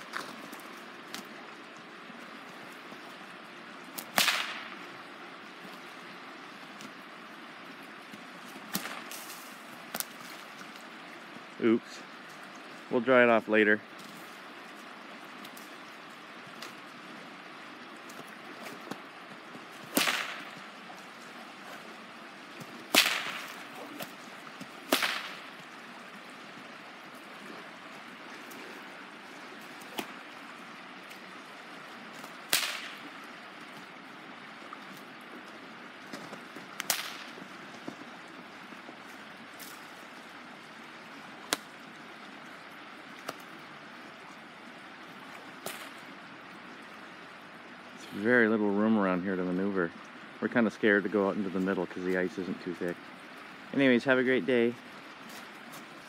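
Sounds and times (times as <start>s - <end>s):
whip cracking: 4.0s - 4.8s, 8.7s - 10.1s, 19.8s - 20.6s, 22.9s - 24.1s, 24.8s - 25.5s, 32.2s - 33.0s, 36.8s - 37.4s.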